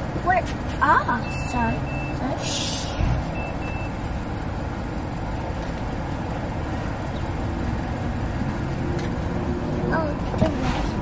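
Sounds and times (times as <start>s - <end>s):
car engine rumble inside cabin: 0.0s - 11.0s
high electronic beeps: 1.2s - 2.2s, 3.3s - 4.0s.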